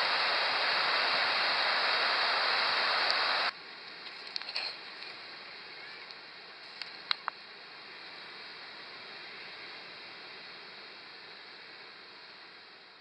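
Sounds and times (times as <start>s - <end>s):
faint clicks: 6.0s - 7.4s.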